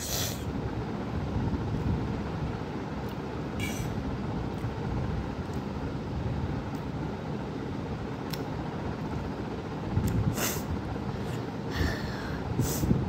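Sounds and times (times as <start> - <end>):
child's hissing breaths: 0.0 - 0.5, 10.3 - 13.0
low background rumble: 0.0 - 13.0.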